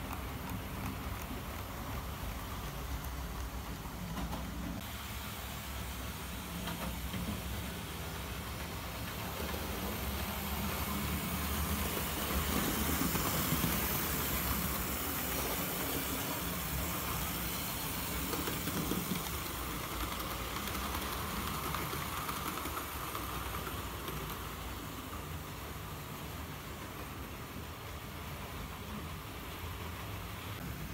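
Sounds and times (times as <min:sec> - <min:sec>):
wheels rolling on rails: 0:00.0 - 0:04.8, 0:06.5 - 0:29.7
model train motor whirring: 0:09.3 - 0:25.1.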